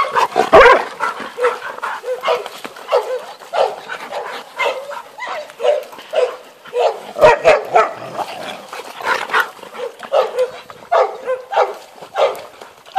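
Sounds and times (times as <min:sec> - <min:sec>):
dog barking: 0:00.0 - 0:08.1, 0:09.8 - 0:12.5.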